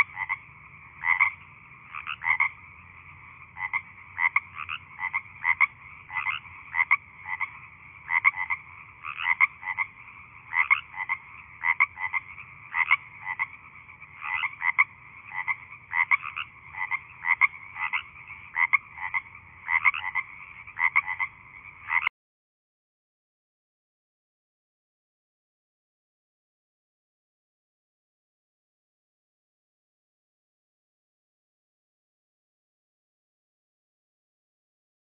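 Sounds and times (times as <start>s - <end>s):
frog croaking: 0.0s - 22.1s.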